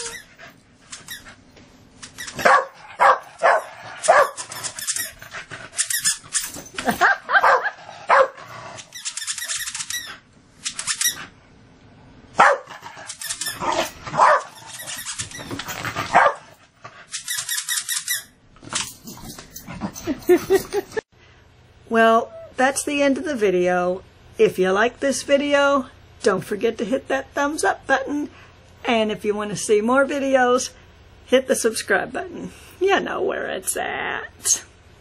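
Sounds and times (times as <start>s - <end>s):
puppy barking and yipping: 2.2s - 4.6s, 6.8s - 8.4s, 12.4s - 12.8s, 13.6s - 14.8s, 16.1s - 16.5s.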